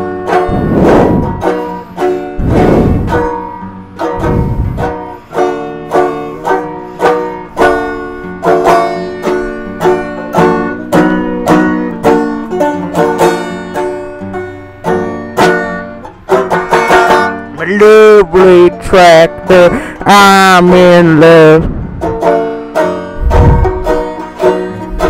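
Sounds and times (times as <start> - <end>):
plucked string melody: 0.0 - 25.0
heavy low swell: 0.4 - 1.6, 2.3 - 3.4, 4.2 - 5.0, 21.6 - 22.3, 23.2 - 24.0.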